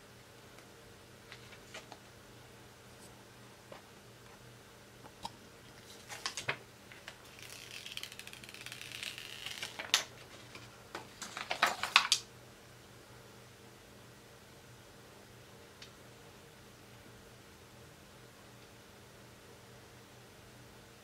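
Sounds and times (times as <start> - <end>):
plastic film peeling: 5.8 - 12.2.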